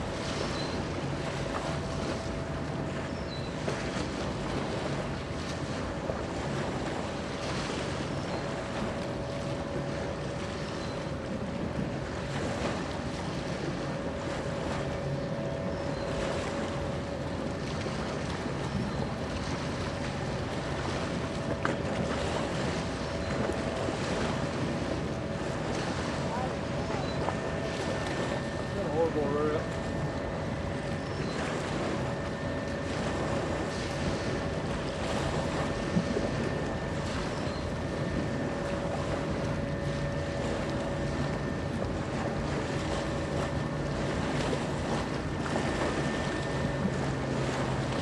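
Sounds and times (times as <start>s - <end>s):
faint constant tone: 0.0s - 48.0s
moving water: 0.0s - 48.0s
ship machinery hum: 0.0s - 48.0s
thin steady whine: 0.0s - 48.0s.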